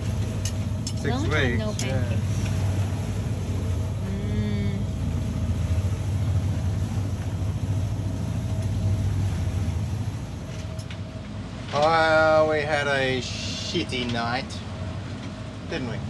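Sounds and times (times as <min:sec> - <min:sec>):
boat engine drone: 0:00.0 - 0:16.0
person humming: 0:04.0 - 0:04.9.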